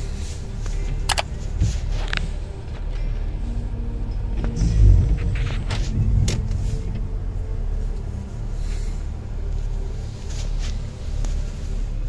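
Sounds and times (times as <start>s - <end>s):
road rumble inside car: 0.0s - 12.0s
sharp clicks: 1.1s - 1.3s.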